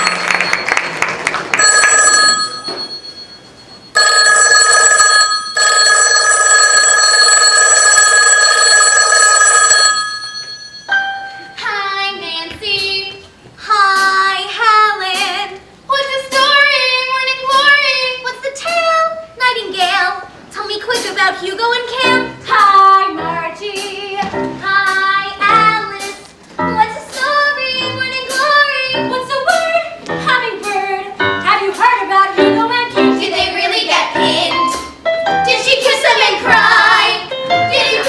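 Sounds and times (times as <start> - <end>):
telephone bell ringing: 1.6 - 11.4
girl singing: 11.6 - 34.8, 35.5 - 38.0.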